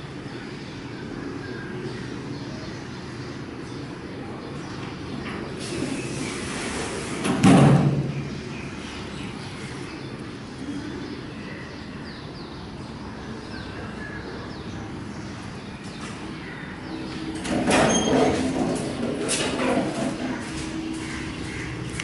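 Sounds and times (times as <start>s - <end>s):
elevator doors sliding open: 5.1s - 8.2s, 17.0s - 21.0s.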